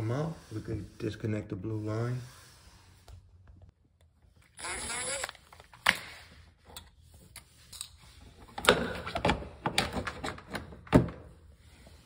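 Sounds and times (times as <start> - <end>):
cordless driver motor whirring: 4.6 - 5.6.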